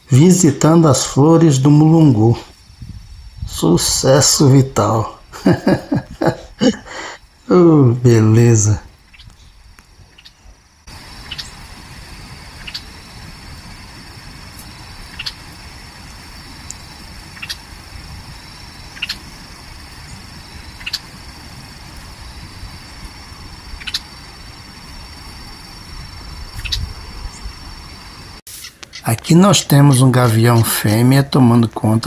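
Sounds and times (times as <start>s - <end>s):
wind rumble on microphone: 2.3s - 6.7s, 8.7s - 28.4s
bird chip calls: 8.9s - 11.7s, 12.5s - 13.2s, 14.6s - 15.6s, 16.5s - 17.7s, 18.4s - 19.4s, 20.0s - 21.2s, 23.7s - 24.2s, 26.6s - 27.5s.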